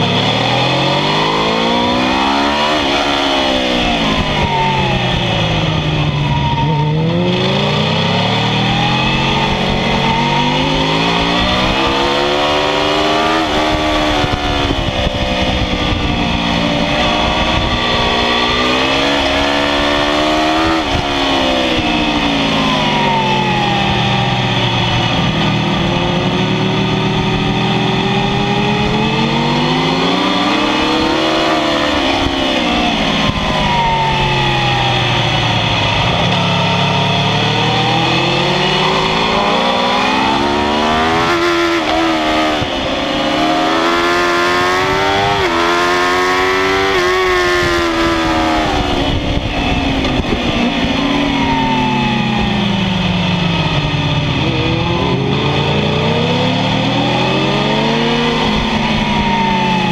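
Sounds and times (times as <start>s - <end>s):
motorcycle engine revving hard: 0.0s - 59.9s.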